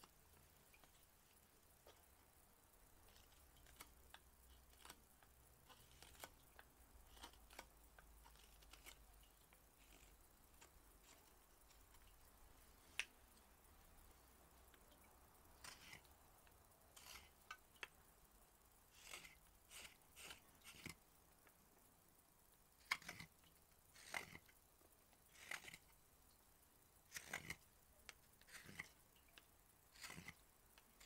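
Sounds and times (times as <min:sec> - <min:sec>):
knife slicing wood: 0:30.0 - 0:30.4.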